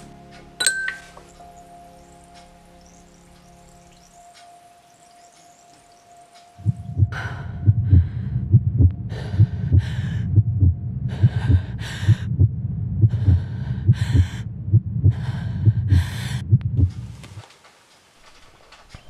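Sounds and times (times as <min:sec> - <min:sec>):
low thumping pulse: 0:06.6 - 0:17.3
heavy panting breaths: 0:06.8 - 0:17.3.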